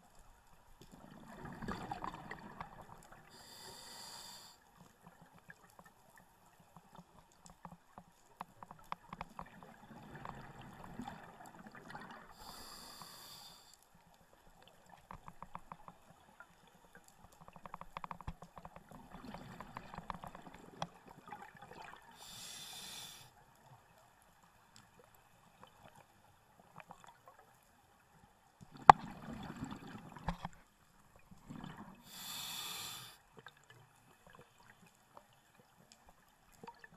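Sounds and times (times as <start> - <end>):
exhaled bubbles gurgling: 1.0 - 3.4, 9.4 - 12.6, 19.0 - 22.2, 28.7 - 30.3, 31.4 - 32.2
regulator hissing air: 3.4 - 4.6, 12.5 - 13.7, 22.3 - 23.3, 32.1 - 33.2.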